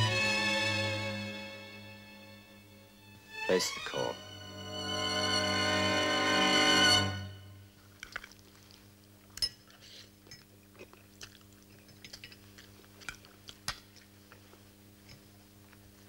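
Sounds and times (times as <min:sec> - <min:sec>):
sad violin music: 0:00.0 - 0:07.7
low hum: 0:00.0 - 0:07.8
chewing: 0:07.8 - 0:16.0.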